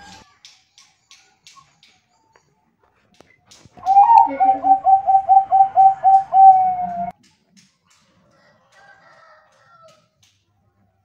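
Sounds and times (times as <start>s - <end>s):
dove cooing: 3.8s - 7.1s.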